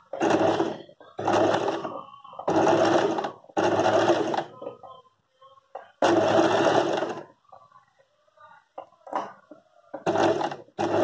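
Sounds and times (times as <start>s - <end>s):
electric sewing machine stitching: 0.1s - 4.5s, 6.0s - 7.3s, 10.0s - 11.0s.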